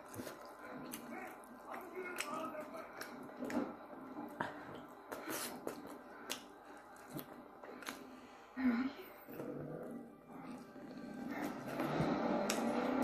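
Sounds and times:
wet mouth smacks and chewing: 4.4s - 8.1s.

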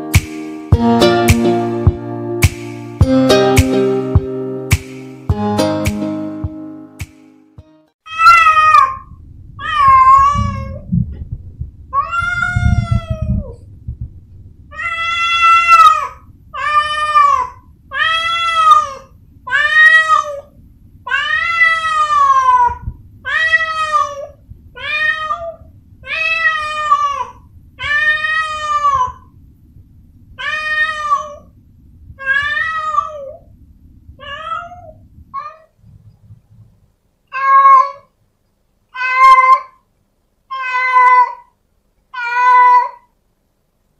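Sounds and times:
cat meowing: 8.1s - 10.9s, 11.9s - 13.6s, 14.7s - 20.5s, 21.1s - 29.3s, 30.4s - 31.5s, 32.2s - 33.4s, 34.2s - 35.8s, 37.3s - 38.1s, 38.9s - 39.8s, 40.5s - 41.5s, 42.1s - 43.1s.

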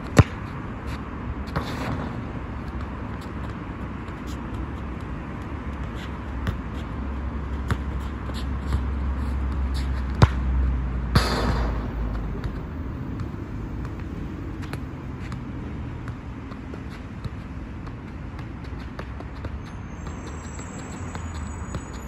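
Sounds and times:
ball kicked thud: 1.5s - 2.9s, 11.1s - 12.6s.

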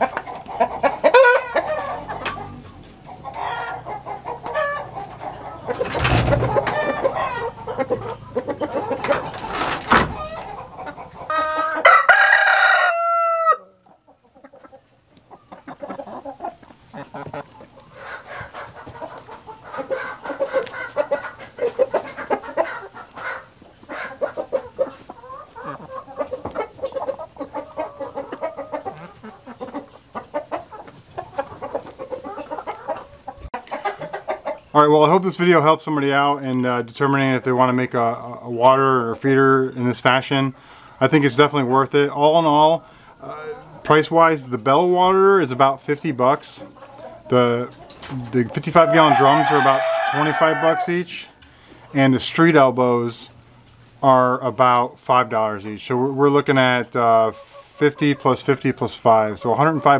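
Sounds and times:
chickens clucking: 0.0s - 59.9s
rooster crowing: 11.3s - 13.8s, 48.8s - 51.1s.

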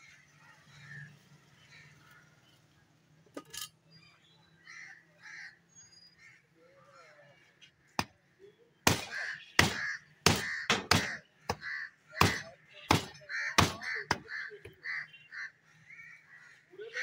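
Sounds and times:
cleaver chopping on wooden block: 8.9s - 14.8s.

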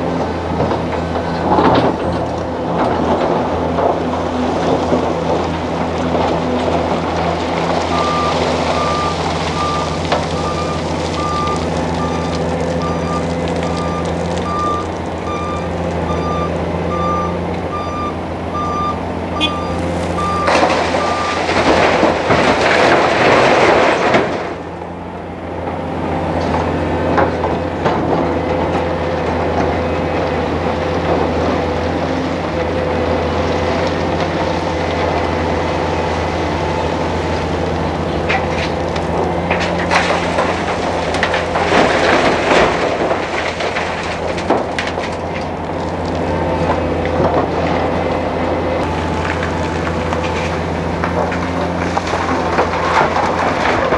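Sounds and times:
diesel machinery running: 0.0s - 53.9s
back-up alarm beeping: 7.9s - 21.5s.

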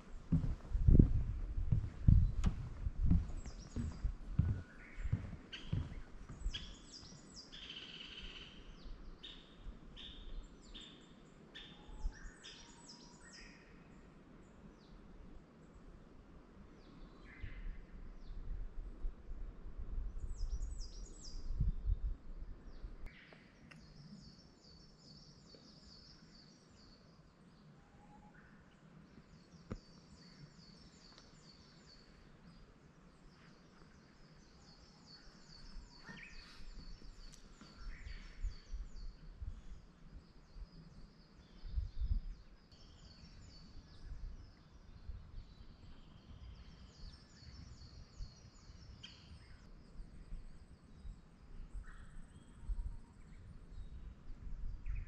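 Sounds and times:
low rumbles: 0.0s - 6.6s.

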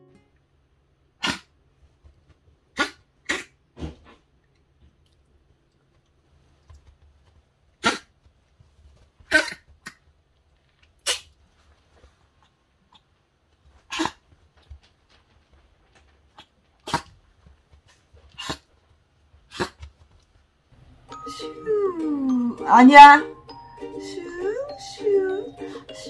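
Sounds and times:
small dog hacking coughs: 2.8s - 3.6s.

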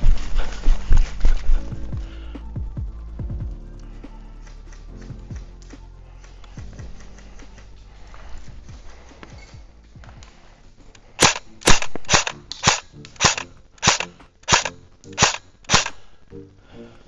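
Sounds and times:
airsoft gun shots: 11.2s - 16.0s.

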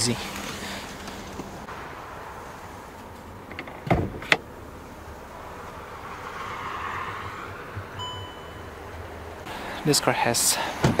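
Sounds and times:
car hood release thump: 3.6s - 4.4s.

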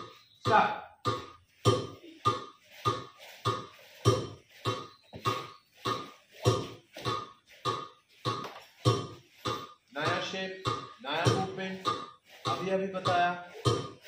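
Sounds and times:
short sharp rhythmic beats: 0.0s - 14.0s.

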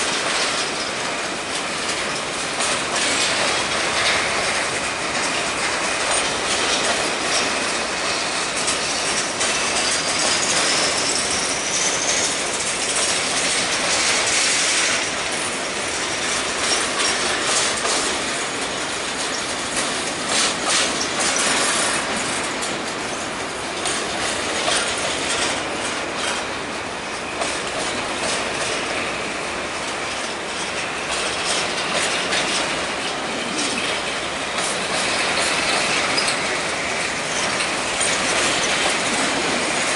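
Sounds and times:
train wheels rumbling over rail joints: 0.0s - 39.9s
wheel squeal: 8.9s - 12.6s, 35.4s - 36.5s.

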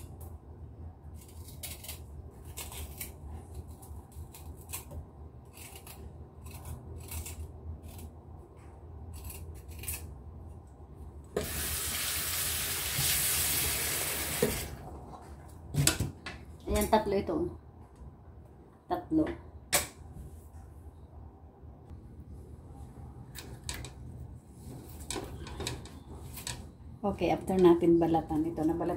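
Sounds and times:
blade scraping root skin: 1.2s - 8.2s, 9.1s - 10.1s
tap water running into sink: 11.4s - 14.8s.

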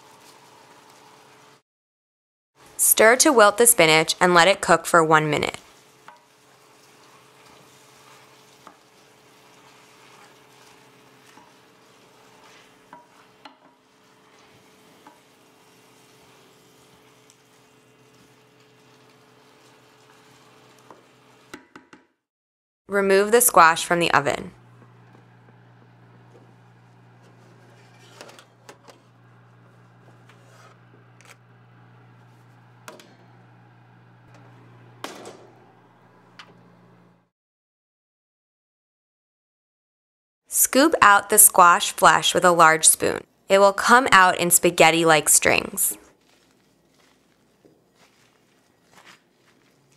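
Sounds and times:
sauce sizzling faintly: 5.6s - 21.5s, 23.1s - 37.2s
wooden spoon stirring in a pan: 5.6s - 21.5s, 24.6s - 35.0s, 45.4s - 49.9s
steady hum: 23.3s - 37.3s
baking sheet sliding on oven rack: 25.0s - 37.2s.

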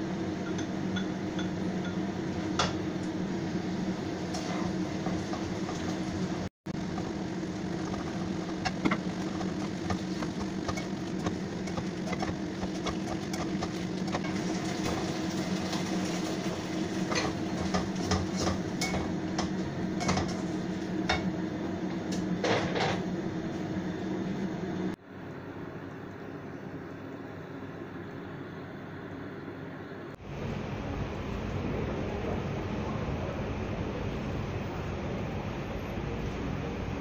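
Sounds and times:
range hood fan humming: 0.0s - 37.0s
spatula scraping a wok: 4.3s - 6.1s.

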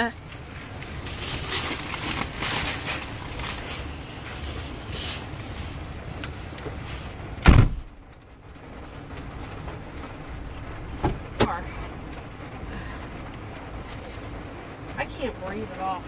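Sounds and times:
handling and rustling: 0.2s - 7.4s
van door slamming shut: 7.4s - 7.9s.

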